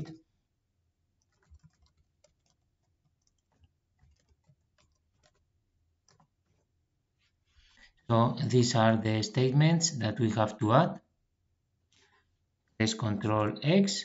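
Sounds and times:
keyboard typing: 0:01.2 - 0:06.7.

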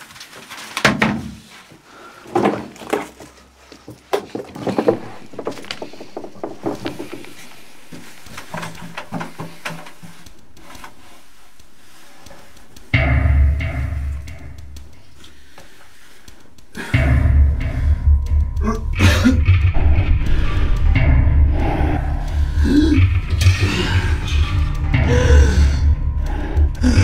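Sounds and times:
wooden furniture knocking and scraping: 0:02.3 - 0:10.0.

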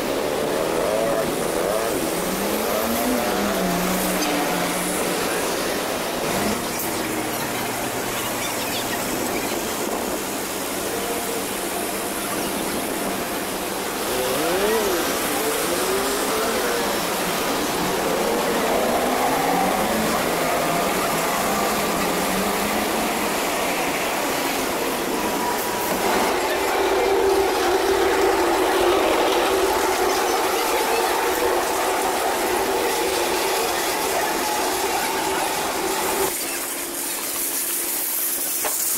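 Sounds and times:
passing voices: 0:00.0 - 0:36.9
traffic noise: 0:00.0 - 0:38.9.

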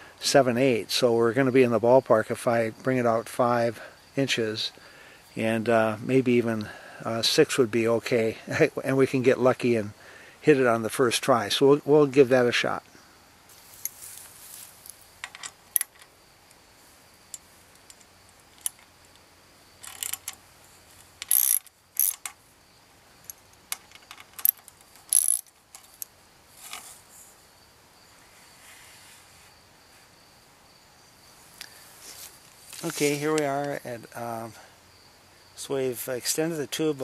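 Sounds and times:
metallic clicks from clamp: 0:19.8 - 0:20.4, 0:21.0 - 0:22.4, 0:23.2 - 0:26.1.

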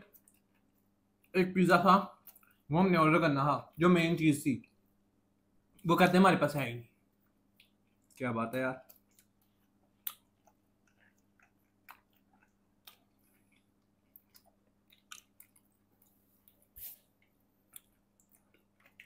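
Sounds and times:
chewing with mouth clicks: 0:00.0 - 0:01.3, 0:07.2 - 0:08.2, 0:08.8 - 0:19.0
low electrical hum: 0:00.0 - 0:19.0.

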